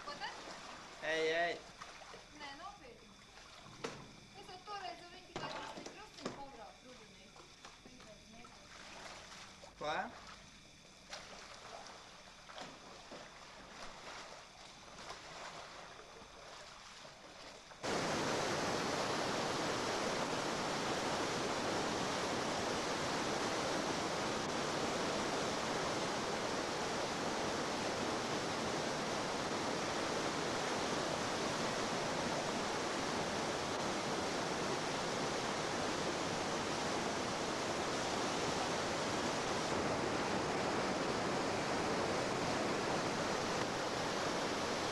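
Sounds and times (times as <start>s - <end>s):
faint paddle splashes: 0.0s - 1.0s, 1.6s - 4.5s, 5.2s - 18.0s
rush of whitewater rapids: 17.8s - 44.9s.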